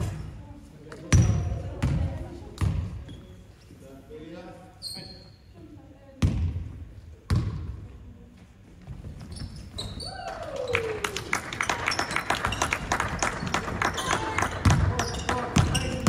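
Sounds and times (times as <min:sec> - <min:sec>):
basketball bouncing in echoing hall: 0:00.0 - 0:03.3, 0:06.1 - 0:08.2, 0:12.1 - 0:16.0
sneaker squeaks: 0:01.1 - 0:02.0, 0:02.6 - 0:03.8, 0:04.8 - 0:05.6, 0:08.8 - 0:10.3, 0:11.9 - 0:16.0.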